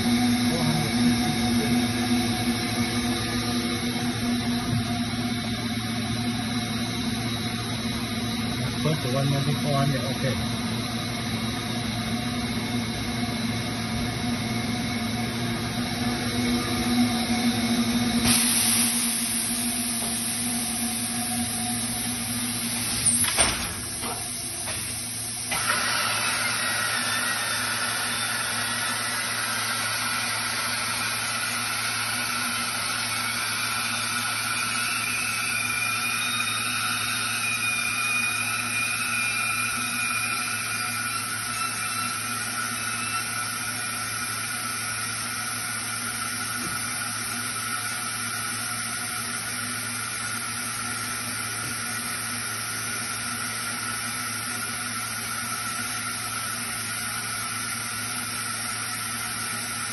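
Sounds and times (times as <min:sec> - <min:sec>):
machinery hum and hiss: 0:00.0 - 0:11.8, 0:13.8 - 0:38.5.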